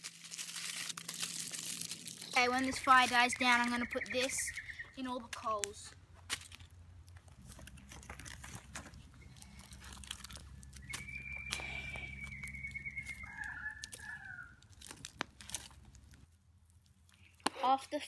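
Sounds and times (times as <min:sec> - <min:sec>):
campfire crackling: 0:00.0 - 0:18.0
stick shifting burning wood: 0:04.5 - 0:17.7
bird long drawn-out call: 0:10.4 - 0:14.6.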